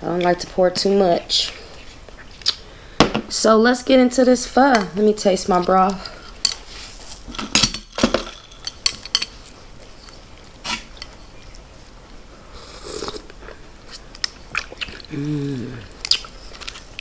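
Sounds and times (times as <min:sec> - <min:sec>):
slurping broth from spoon: 0:12.6 - 0:13.3.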